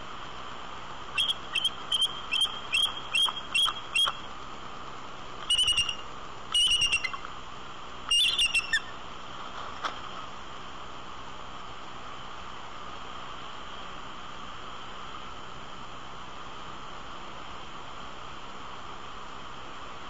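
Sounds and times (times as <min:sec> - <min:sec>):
background hiss: 0:00.0 - 0:20.0
eagle calling: 0:01.1 - 0:04.3, 0:05.4 - 0:07.3, 0:08.1 - 0:09.0.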